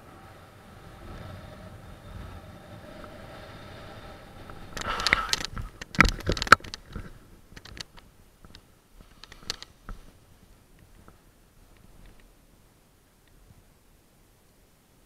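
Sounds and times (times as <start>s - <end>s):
light clicks and rustles: 4.7s - 12.4s.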